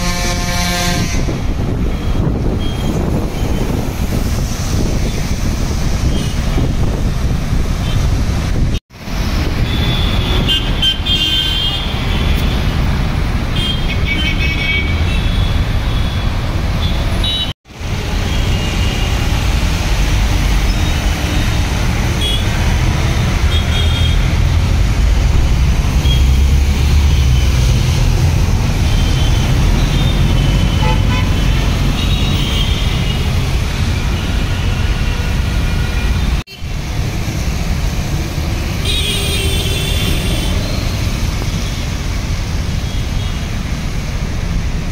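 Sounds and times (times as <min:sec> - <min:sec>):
car and scooter horns honking: 0:00.0 - 0:03.7, 0:09.6 - 0:12.8, 0:13.5 - 0:17.5, 0:21.2 - 0:22.6, 0:23.4 - 0:24.4, 0:28.7 - 0:36.7, 0:38.7 - 0:40.8
road traffic rumble: 0:00.0 - 0:44.9.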